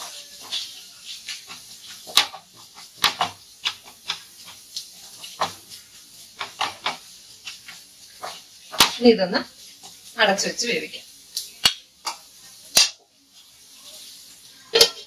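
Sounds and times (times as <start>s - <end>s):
wooden spatula scraping a frying pan: 0.0s - 11.0s.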